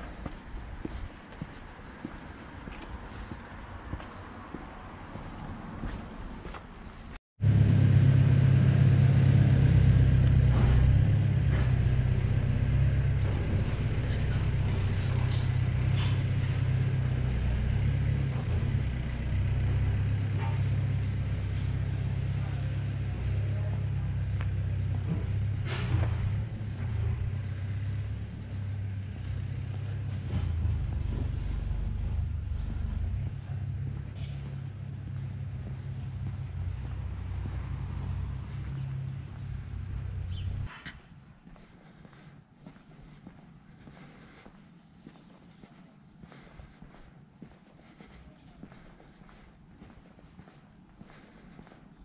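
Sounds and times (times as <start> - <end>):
low outdoor rumble: 6.1 - 52.0
vehicle engine running: 7.4 - 40.7.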